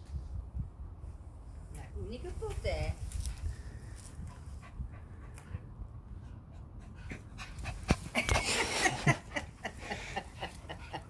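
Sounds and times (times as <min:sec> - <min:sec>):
dogs panting: 0:04.2 - 0:11.0.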